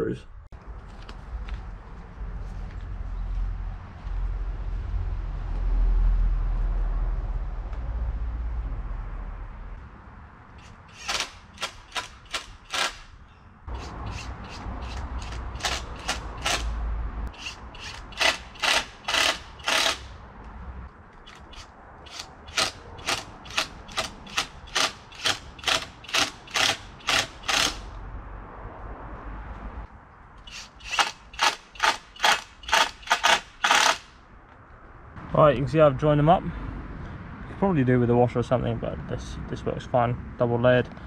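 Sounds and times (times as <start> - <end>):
impact driver driving screws: 10.6 - 13.1, 13.8 - 16.7, 17.4 - 20.1, 21.3 - 27.9, 30.5 - 34.1.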